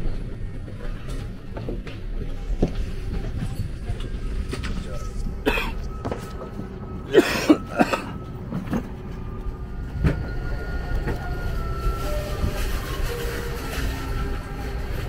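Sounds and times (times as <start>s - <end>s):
airliner cabin hum: 0.0s - 15.0s
person coughing: 5.4s - 5.9s, 7.1s - 8.2s.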